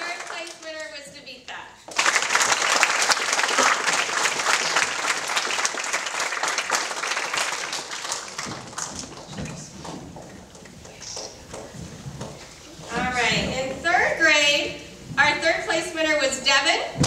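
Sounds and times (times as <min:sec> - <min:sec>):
audience applauding: 0:01.9 - 0:12.5.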